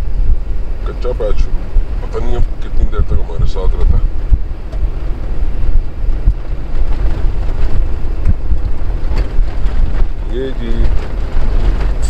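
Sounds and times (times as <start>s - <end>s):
car tyres rumbling on dirt road: 0.0s - 12.0s
wind buffeting microphone: 0.0s - 12.0s
car bumps: 3.8s - 12.0s.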